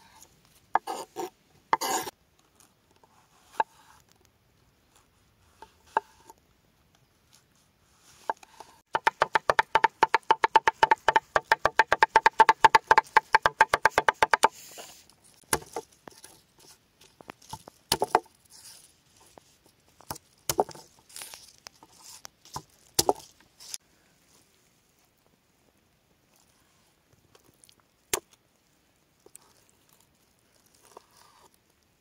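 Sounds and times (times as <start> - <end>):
knife chopping on wooden board: 0.8 - 2.1, 9.0 - 14.6, 15.5 - 15.8, 22.6 - 23.2
knife scraping on board: 0.8 - 2.1.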